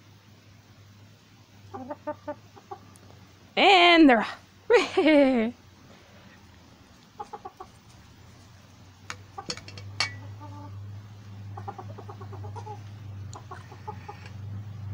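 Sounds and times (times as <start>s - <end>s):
low steady hum: 0.0s - 14.9s
chickens clucking: 1.5s - 3.3s, 6.3s - 14.7s.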